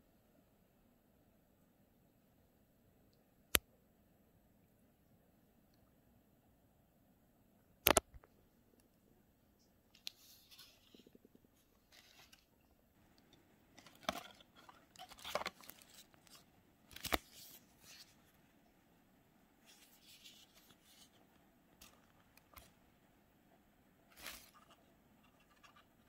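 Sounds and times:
sharp clicks: 0:07.8 - 0:08.3.

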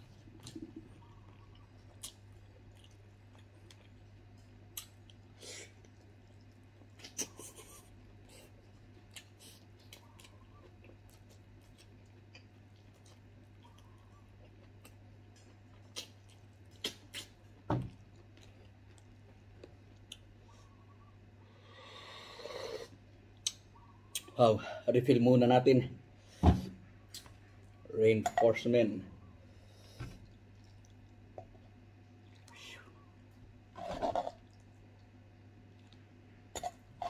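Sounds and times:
chewing and lip smacks: 0:00.2 - 0:20.8, 0:30.2 - 0:33.2, 0:34.3 - 0:36.8.

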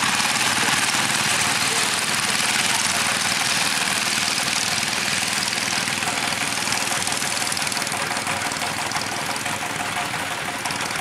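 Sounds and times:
diesel engine chugging: 0:00.0 - 0:11.0.

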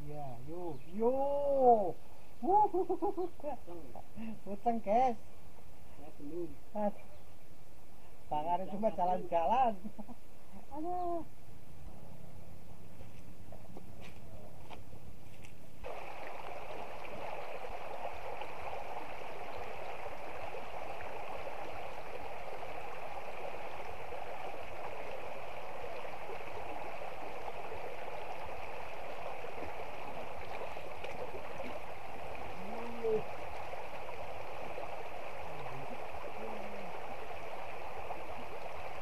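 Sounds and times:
stream water rushing over stones: 0:15.8 - 0:39.0.

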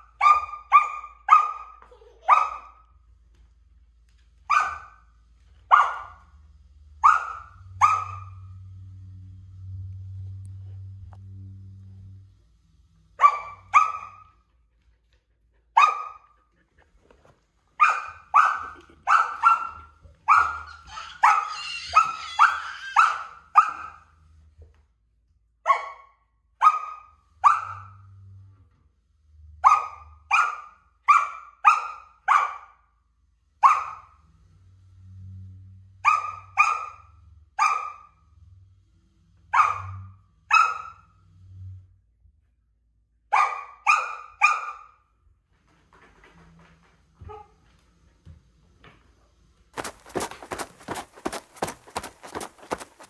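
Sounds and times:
puppy barking: 0:00.0 - 0:02.9, 0:04.5 - 0:05.0, 0:05.7 - 0:06.3, 0:07.0 - 0:08.4, 0:13.2 - 0:14.4, 0:15.8 - 0:16.4, 0:17.8 - 0:24.1, 0:25.7 - 0:28.0, 0:29.6 - 0:32.8, 0:33.6 - 0:34.2, 0:36.0 - 0:38.2, 0:39.5 - 0:41.1, 0:43.3 - 0:45.0, 0:49.8 - 0:53.0.

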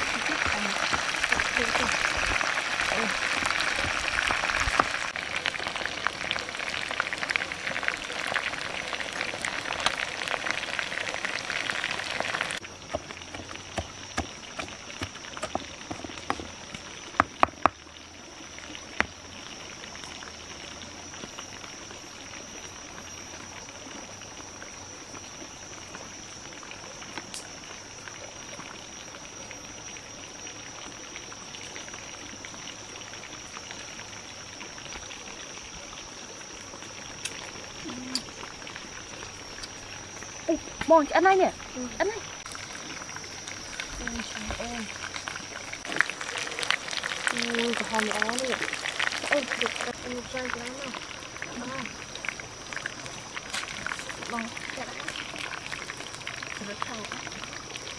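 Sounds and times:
wings sizzling in hot oil: 0:00.0 - 0:22.8, 0:36.4 - 0:57.9
clicks and knocks in stone mortar: 0:12.9 - 0:17.8.

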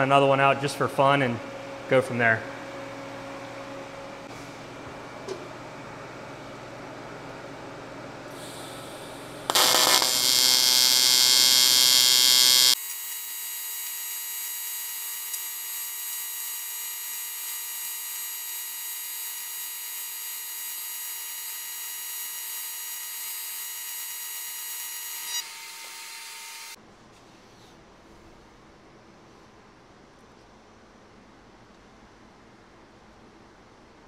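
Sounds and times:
welding arc buzzing: 0:08.3 - 0:26.8.

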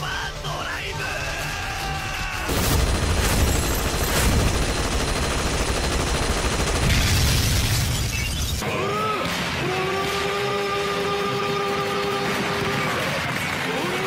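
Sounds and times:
blasts and impacts: 0:02.4 - 0:08.6.

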